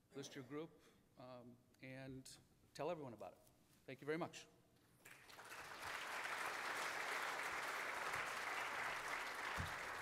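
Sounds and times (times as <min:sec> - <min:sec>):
audience applauding: 0:05.1 - 0:10.0.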